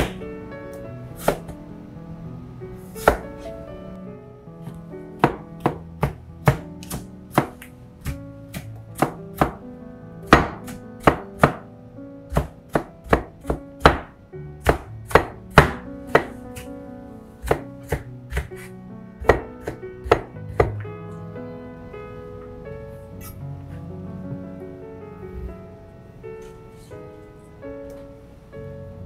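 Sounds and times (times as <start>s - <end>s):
knife chopping on plastic board: 5.2s - 9.6s, 10.3s - 11.6s, 12.3s - 16.7s, 17.4s - 18.7s, 19.3s - 20.8s.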